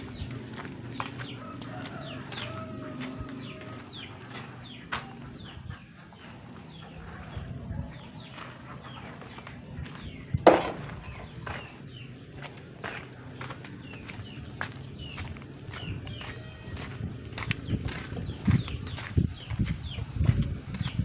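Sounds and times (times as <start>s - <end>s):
birds chirping: 0.0s - 21.0s
footsteps on gravel: 0.0s - 21.0s
hoe knocking against ground: 10.4s - 10.9s.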